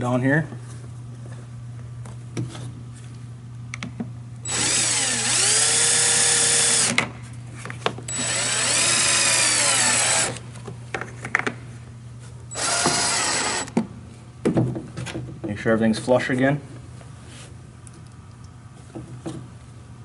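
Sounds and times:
cordless drill whining: 4.5 - 7.0, 8.1 - 10.4, 12.5 - 13.7.

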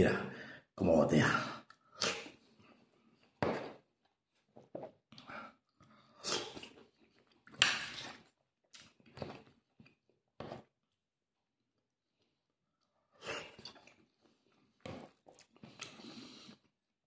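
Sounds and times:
person chewing orange: 5.0 - 11.0, 12.2 - 16.8.

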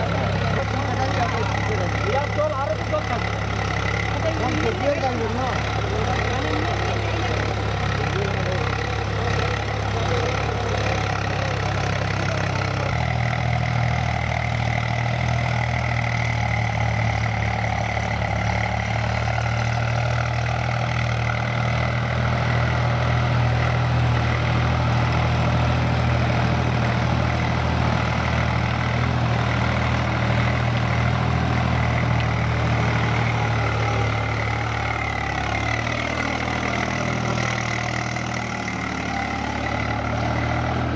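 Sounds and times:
tractor diesel engine running: 0.0 - 40.9.

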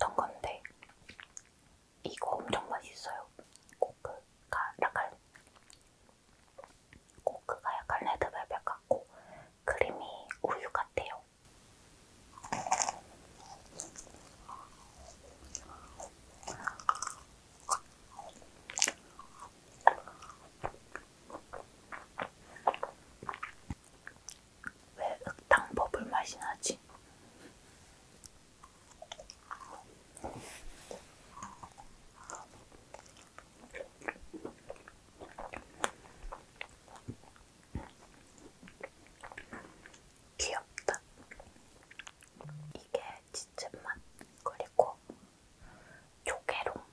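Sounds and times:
crisp crunches of eating: 5.3 - 7.2, 12.4 - 25.5, 28.2 - 30.3, 31.0 - 42.4
steady chewing: 12.3 - 25.6, 28.2 - 42.6.

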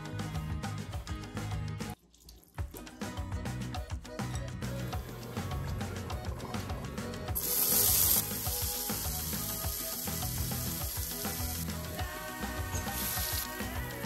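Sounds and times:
background music: 0.0 - 14.0
food sizzling in hot oil: 7.4 - 14.0.

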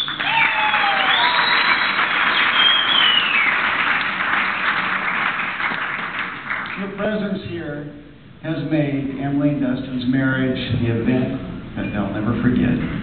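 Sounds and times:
high whoops: 0.0 - 3.6
people applauding: 0.0 - 7.3.

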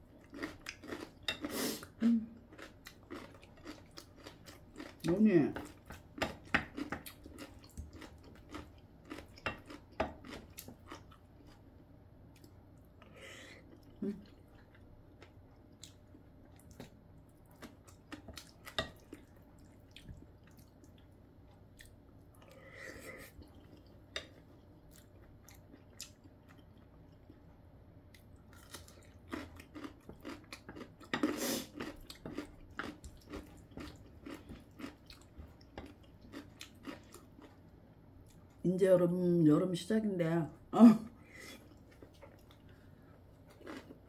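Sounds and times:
chewing and crunching food: 0.0 - 38.6, 41.4 - 44.0.

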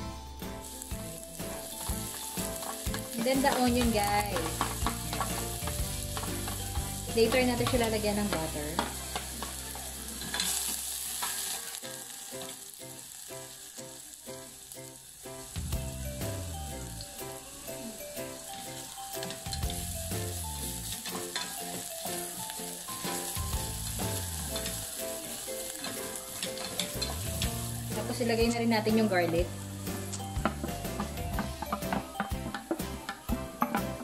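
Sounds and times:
onion sizzling in hot oil: 0.4 - 34.0.

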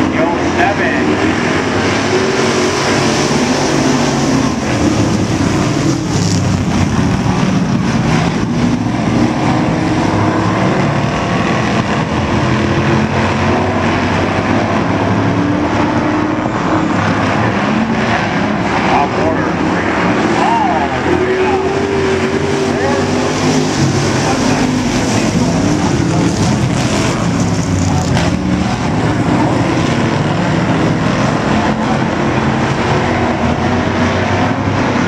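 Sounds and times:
race car engines droning: 0.0 - 35.0.

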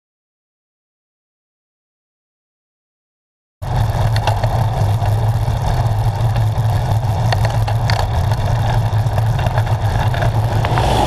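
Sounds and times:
low wind rumble: 3.6 - 11.0
road noise: 3.6 - 11.0.

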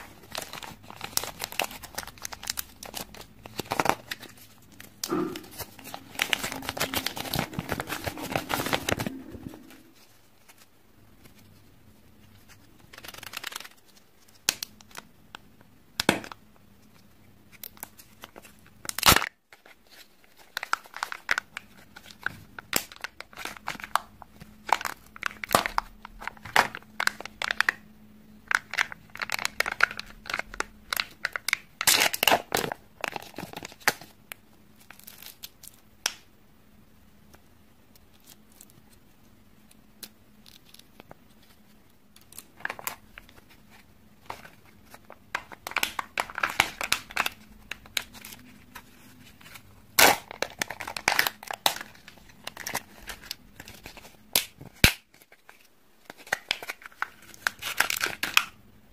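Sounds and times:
wrapper crinkling: 0.0 - 11.6, 12.2 - 15.1, 17.5 - 27.8, 28.4 - 34.2, 34.8 - 35.8, 40.0 - 58.6
seal tearing from plastic cup: 0.3 - 9.7, 28.5 - 34.1, 45.4 - 48.4, 49.5 - 55.3, 56.1 - 58.6.

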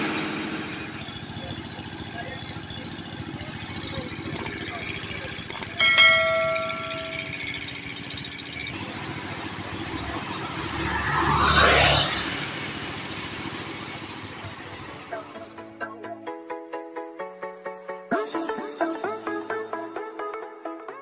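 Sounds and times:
engine running: 0.0 - 15.8
vehicle passing by: 6.1 - 15.1.

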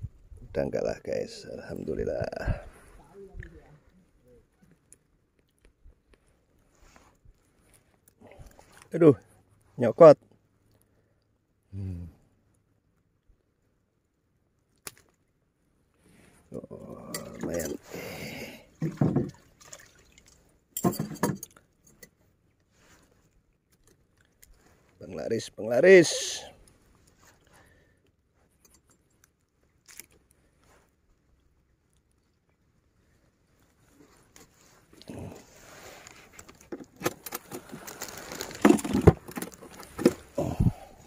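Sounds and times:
handling clicks knocks and rustling: 20.8 - 22.2, 36.3 - 40.3.

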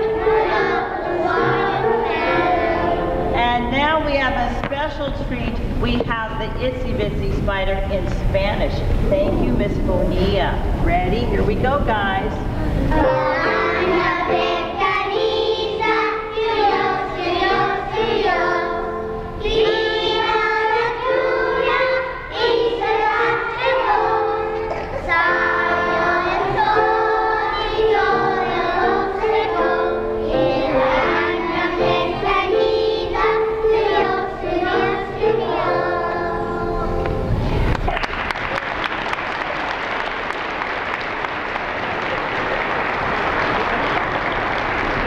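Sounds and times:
children singing: 0.0 - 3.4, 12.9 - 37.3
piano accompaniment: 0.0 - 38.7.

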